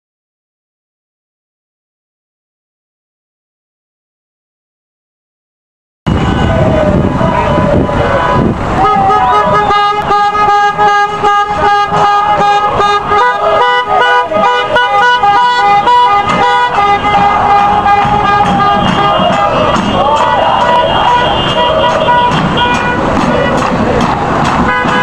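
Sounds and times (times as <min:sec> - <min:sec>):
car horns honking: 0:06.1 - 0:25.0
passing traffic: 0:06.1 - 0:25.0.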